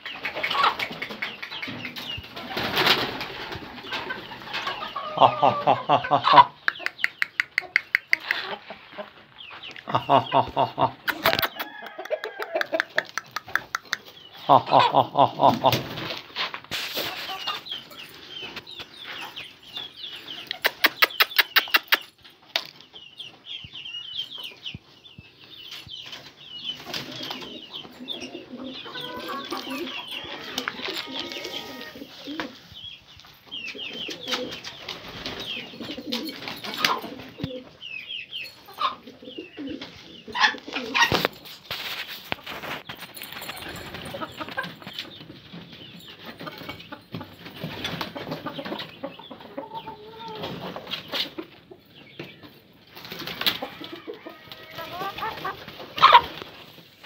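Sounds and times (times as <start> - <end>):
pigeons cooing: 0.0 - 8.7, 26.8 - 32.7, 33.6 - 37.8, 38.7 - 41.4
chickens clucking: 0.0 - 57.0
pigeon wings flapping: 2.3 - 4.0.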